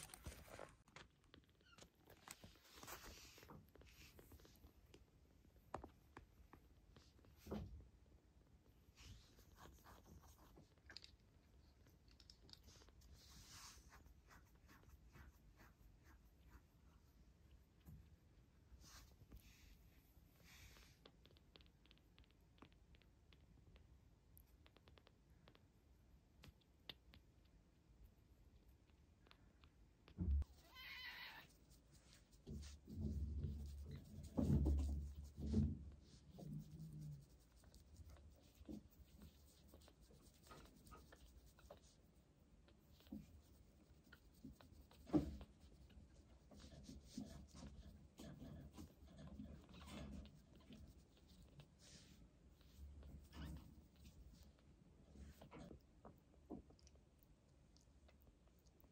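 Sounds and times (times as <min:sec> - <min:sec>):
kitten rustling in bedding: 0:00.0 - 0:00.9, 0:02.1 - 0:05.0, 0:12.6 - 0:17.0
tissue rubbing and scratching: 0:31.5 - 0:42.0.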